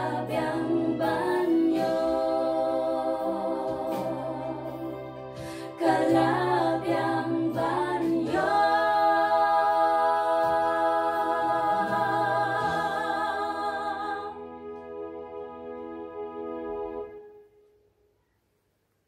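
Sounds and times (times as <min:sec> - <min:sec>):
voices singing a hymn: 0:00.0 - 0:14.5.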